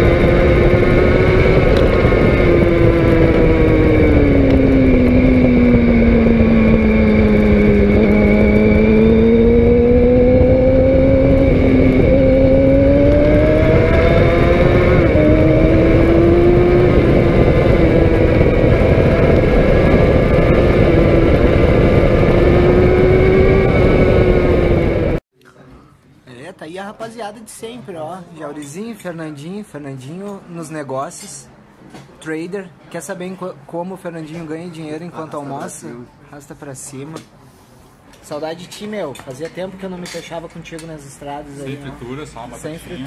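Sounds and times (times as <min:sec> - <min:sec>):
motorcycle engine: 0:00.0 - 0:25.2
wind and road rush: 0:00.0 - 0:25.2.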